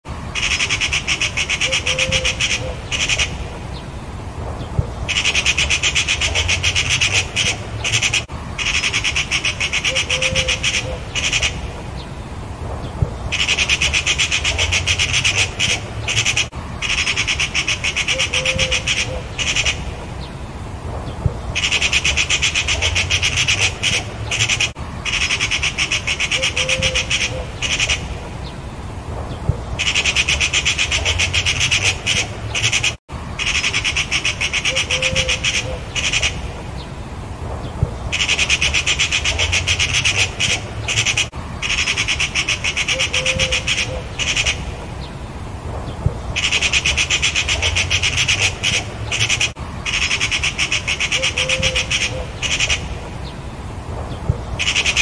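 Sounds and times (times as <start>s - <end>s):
magpies chattering alarm rattle: 0.4s - 3.4s, 5.1s - 11.6s, 13.3s - 19.8s, 21.6s - 28.0s, 29.8s - 36.4s, 38.1s - 44.6s, 46.4s - 52.9s, 54.6s - 55.0s.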